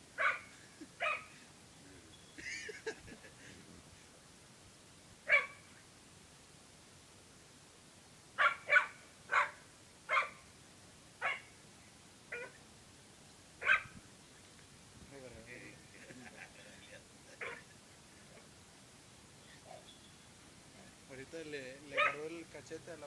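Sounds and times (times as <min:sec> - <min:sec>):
dog barking: 0:00.2 - 0:01.3, 0:05.3 - 0:05.6, 0:08.4 - 0:10.4, 0:11.2 - 0:11.5, 0:12.3 - 0:12.6, 0:13.6 - 0:13.9, 0:17.4 - 0:17.7, 0:21.9 - 0:22.3.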